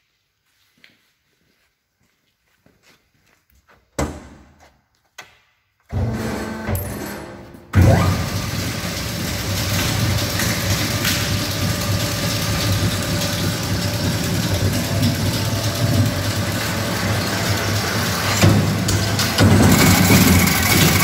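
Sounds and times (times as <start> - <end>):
shredder running with low hum: 7.7 - 21.0.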